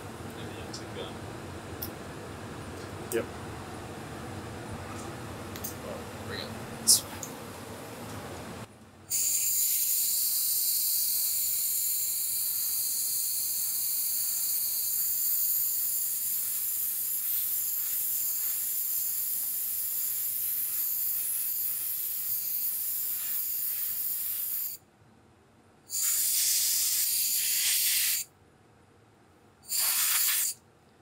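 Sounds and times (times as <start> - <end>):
air blow-off gun hissing: 9.1 - 24.8, 25.9 - 28.3, 29.7 - 30.6.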